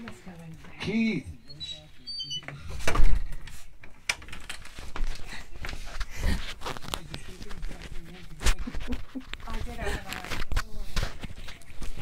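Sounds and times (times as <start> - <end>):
knocks and thumps of movement: 2.7 - 12.0.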